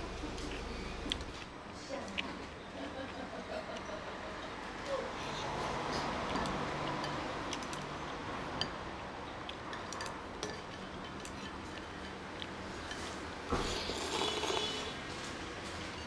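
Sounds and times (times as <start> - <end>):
steady background noise: 0.0 - 16.0
spoon and chopsticks clinking bowl: 9.7 - 13.1.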